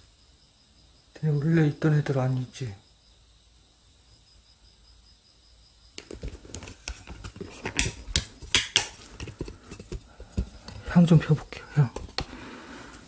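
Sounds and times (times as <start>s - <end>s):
plastic bag rustling and crinkling: 6.0s - 10.0s.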